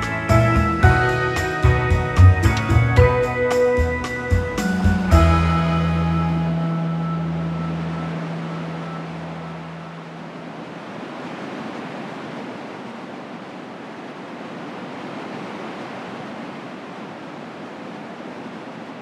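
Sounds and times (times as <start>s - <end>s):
music track: 0.0s - 10.2s
ocean surf breaking: 0.8s - 19.0s.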